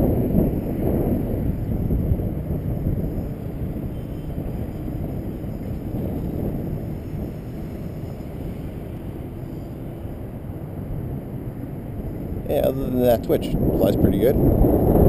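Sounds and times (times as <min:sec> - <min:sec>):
distant drone motor whine: 0:00.0 - 0:15.0
wind buffeting microphone: 0:00.0 - 0:15.0.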